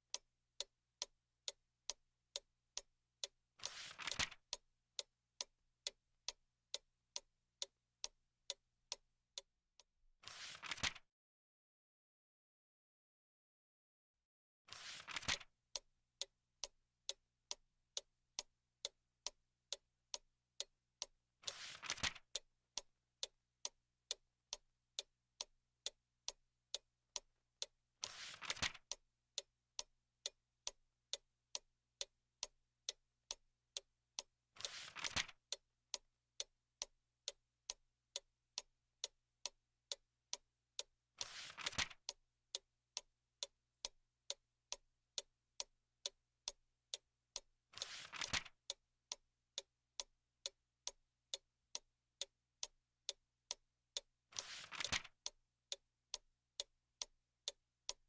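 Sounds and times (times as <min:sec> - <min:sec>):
clock ticking: 0:00.0 - 0:09.9, 0:15.0 - 0:58.0
book page turning: 0:03.7 - 0:04.3, 0:10.2 - 0:11.0, 0:14.7 - 0:15.4, 0:28.1 - 0:28.8, 0:34.6 - 0:35.3, 0:41.2 - 0:41.9, 0:47.8 - 0:48.5, 0:54.4 - 0:55.1.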